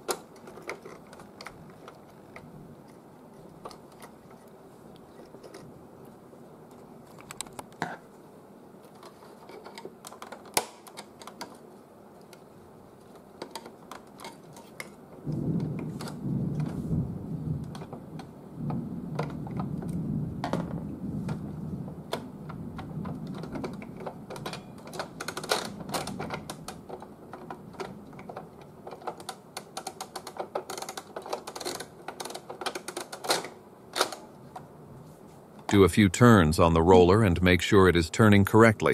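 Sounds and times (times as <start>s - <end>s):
plastic parts clicking and rattling: 0.0s - 4.6s, 5.2s - 5.7s, 6.7s - 7.9s, 8.8s - 16.8s, 17.6s - 21.5s, 22.1s - 34.7s.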